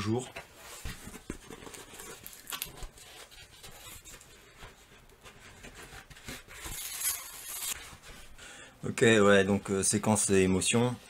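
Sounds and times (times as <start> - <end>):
cardboard rustling and scraping: 0.5 - 8.3.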